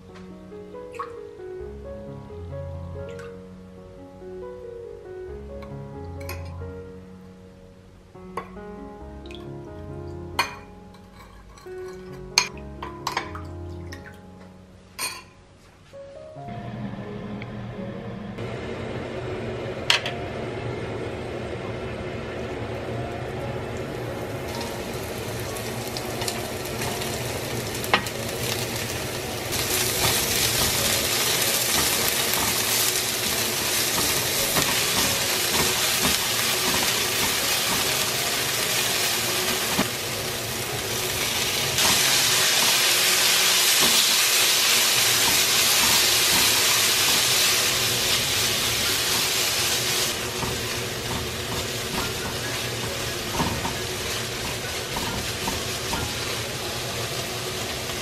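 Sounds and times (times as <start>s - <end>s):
food sizzling in oil: 23.6s - 58.0s.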